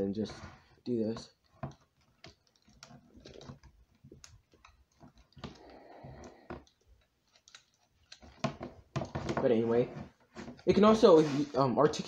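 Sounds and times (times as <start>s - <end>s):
scraping rustle: 0.0s - 12.0s.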